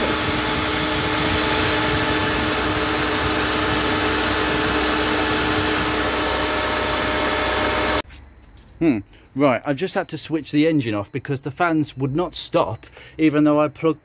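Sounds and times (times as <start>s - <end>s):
car engine idling: 0.0s - 8.0s
cooling fans whirring: 0.0s - 8.0s.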